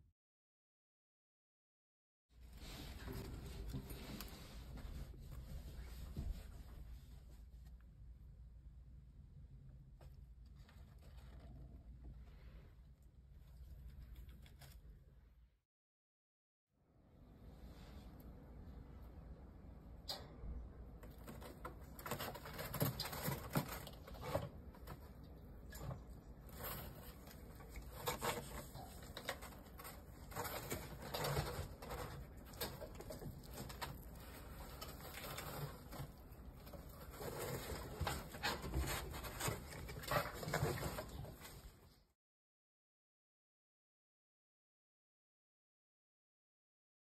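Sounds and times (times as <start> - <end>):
rustling: 2.4 - 8.2, 9.9 - 15.1, 21.0 - 42.1
rats nibbling and crunching: 13.3 - 15.0, 21.0 - 41.7.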